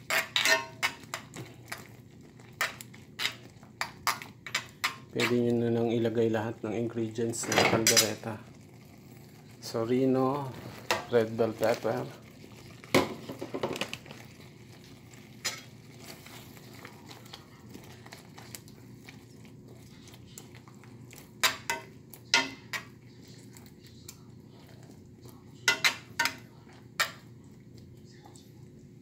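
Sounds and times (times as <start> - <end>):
spoon clinking against skillet: 25.6 - 26.4.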